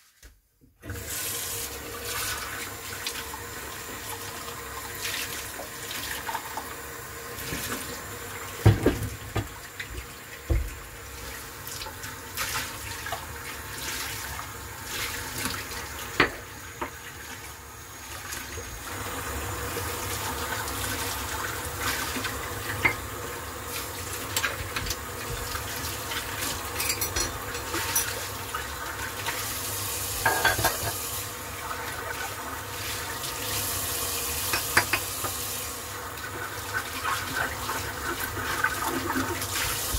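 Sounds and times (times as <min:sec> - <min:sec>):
tap running into sink: 0:08.5 - 0:10.9, 0:24.3 - 0:25.7, 0:30.2 - 0:31.1, 0:34.4 - 0:35.4
dishes clinking and knocking: 0:26.8 - 0:28.2, 0:30.2 - 0:31.0.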